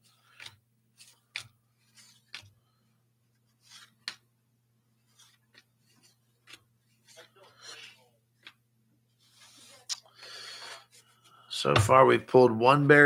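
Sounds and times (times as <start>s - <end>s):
cards flicking and swishing: 0.1s - 2.6s, 3.5s - 4.3s.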